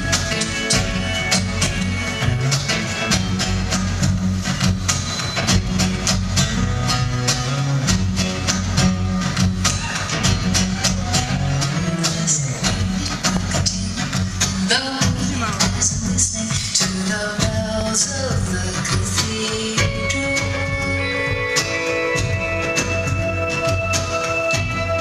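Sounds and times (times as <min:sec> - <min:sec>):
deep bass line: 0:00.0 - 0:16.4
electric guitar: 0:00.0 - 0:25.0
steady beat: 0:00.0 - 0:25.0.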